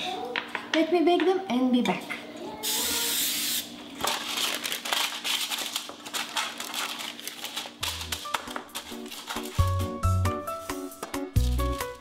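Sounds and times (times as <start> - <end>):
cooking spray hissing: 2.6 - 3.8
parchment paper crinkling: 4.0 - 12.0.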